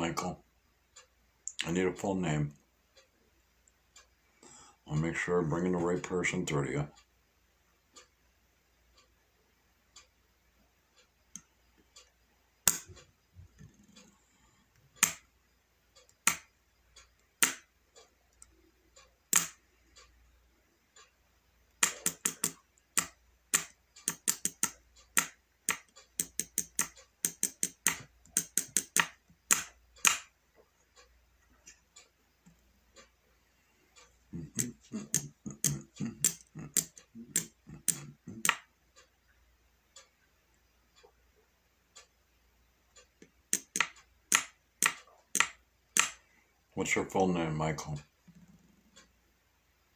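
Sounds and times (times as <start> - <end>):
fingers typing clicks: 21.8 - 30.3.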